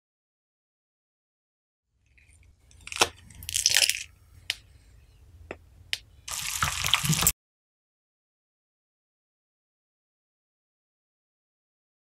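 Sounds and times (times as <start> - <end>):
slime crunching and crackling: 2.2 - 4.1.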